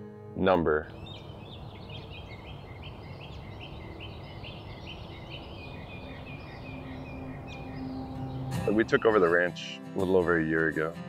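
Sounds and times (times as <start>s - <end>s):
outdoor background hiss: 0.2s - 9.0s
bird chirping: 0.8s - 9.3s.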